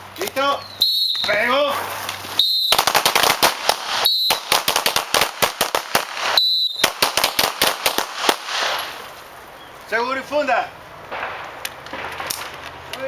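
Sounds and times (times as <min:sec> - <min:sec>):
short whistle blasts: 0:00.7 - 0:01.4, 0:02.4 - 0:02.9, 0:04.0 - 0:04.5, 0:06.3 - 0:06.9
handguns firing: 0:02.6 - 0:08.9, 0:11.1 - 0:12.7.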